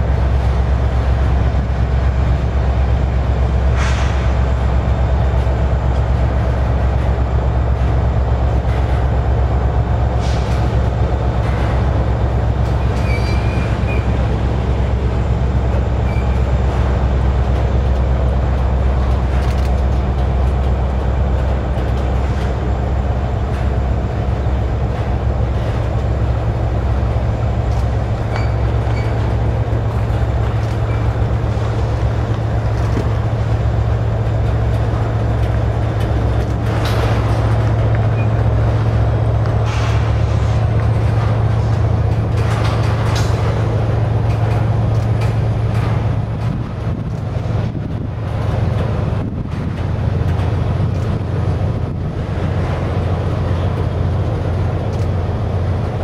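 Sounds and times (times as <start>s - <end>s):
freight train rumbling: 0.0s - 56.0s
wheels clicking over rail: 5.3s - 56.0s
faint wheel squeals: 12.8s - 14.2s.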